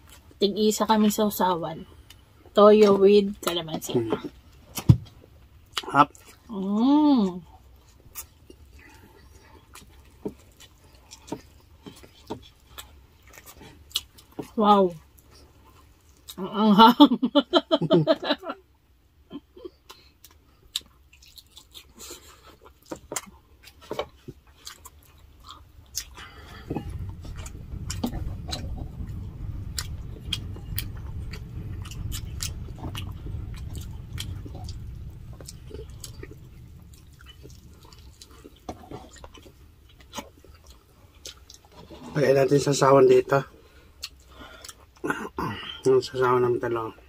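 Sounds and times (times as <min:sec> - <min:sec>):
close chewing: 0:07.5 - 0:16.4, 0:19.8 - 0:42.1, 0:43.6 - 0:45.1
low muffled rumble: 0:25.1 - 0:44.4.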